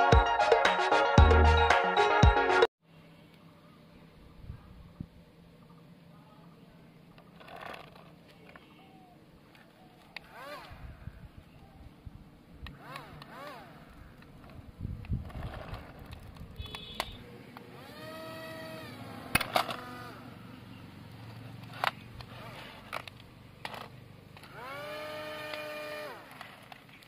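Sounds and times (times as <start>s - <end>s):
toy propeller motors whining: 7.3s - 8.7s, 10.0s - 11.1s, 12.6s - 16.3s, 17.7s - 20.5s, 21.3s - 27.0s.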